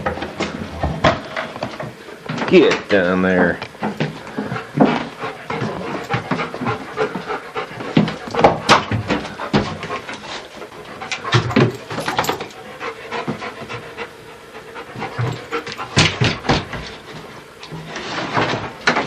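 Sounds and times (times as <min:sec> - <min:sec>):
dog panting: 0:03.8 - 0:17.6.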